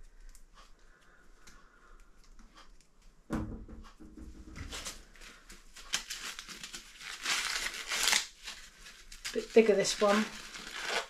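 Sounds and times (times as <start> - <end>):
corn husks rustling and tearing: 4.7 - 11.0.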